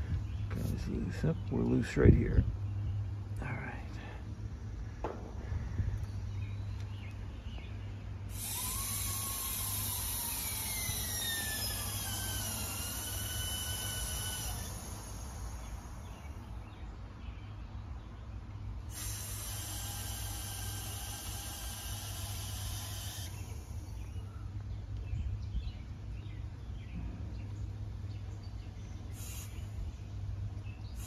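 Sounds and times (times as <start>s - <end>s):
steady low hum: 0.0s - 31.0s
gas hissing through hoses: 8.3s - 16.3s, 18.9s - 24.2s, 29.1s - 29.8s.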